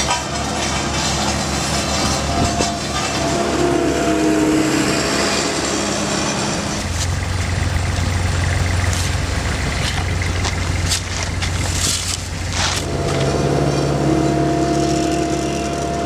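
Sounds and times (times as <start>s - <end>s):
rake and shovel scraping asphalt: 0.0s - 7.2s, 8.8s - 16.0s
loader diesel engine running: 0.0s - 16.0s.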